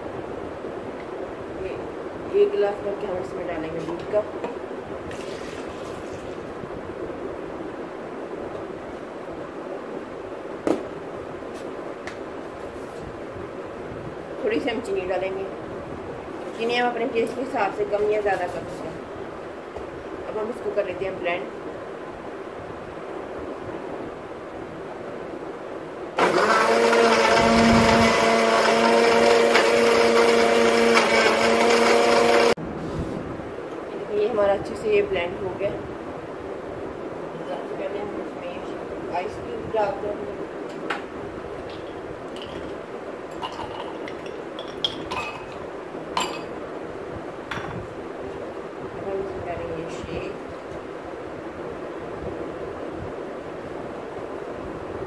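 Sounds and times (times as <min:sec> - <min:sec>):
electric blender running: 0:26.2 - 0:32.6.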